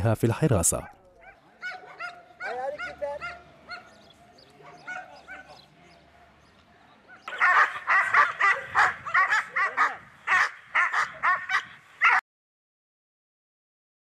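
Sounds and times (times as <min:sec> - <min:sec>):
dog barking rapidly: 0:00.8 - 0:04.0, 0:04.6 - 0:05.7, 0:07.2 - 0:12.2.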